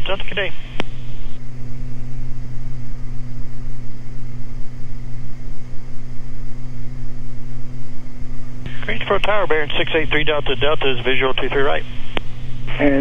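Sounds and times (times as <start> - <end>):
radio hiss: 0.0 - 1.4, 8.7 - 13.0
aircraft engines and propellers droning: 0.0 - 13.0.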